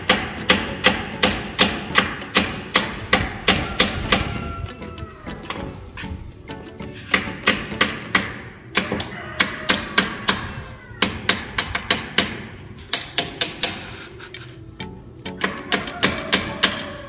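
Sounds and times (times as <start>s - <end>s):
hammer tapping a nail: 0.0s - 4.4s, 7.1s - 13.9s, 15.3s - 16.9s.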